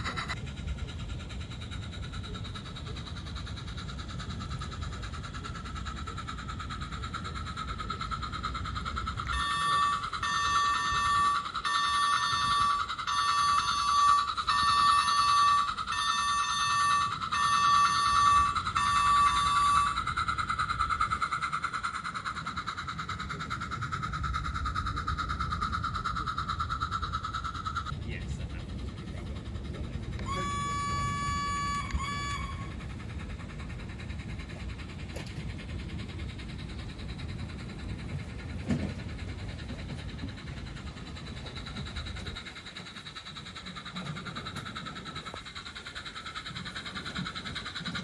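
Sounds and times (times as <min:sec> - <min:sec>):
model train running on track: 0:00.0 - 0:48.0
steady high whine: 0:00.0 - 0:48.0
repeated pitched beeping: 0:09.3 - 0:20.0.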